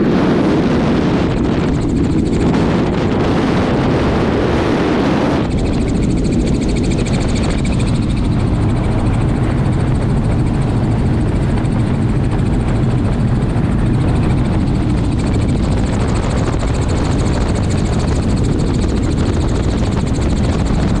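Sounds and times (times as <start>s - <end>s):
helicopter rotor and engine: 0.0s - 21.0s.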